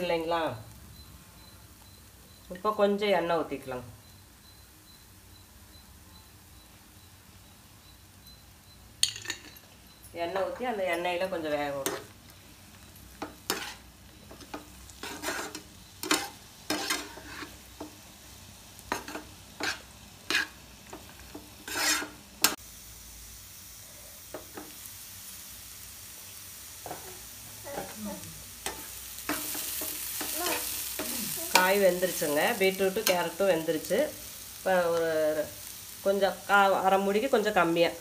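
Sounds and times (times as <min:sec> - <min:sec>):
vegetables sizzling in oil: 0:00.0 - 0:38.0
spatula scraping frying pan: 0:11.7 - 0:12.2, 0:13.1 - 0:18.0, 0:18.8 - 0:22.6, 0:26.8 - 0:28.0, 0:28.6 - 0:33.4.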